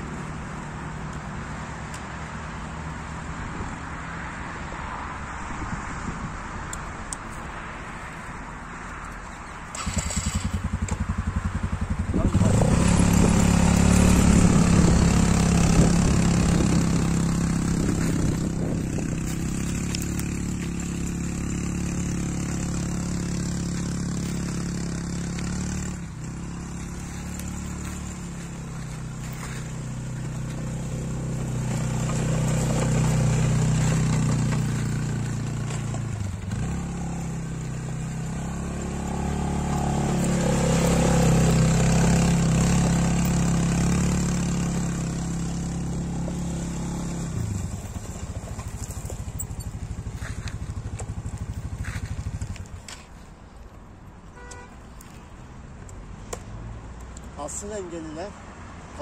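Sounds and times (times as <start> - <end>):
quad bike engine running: 9.7 - 53.0.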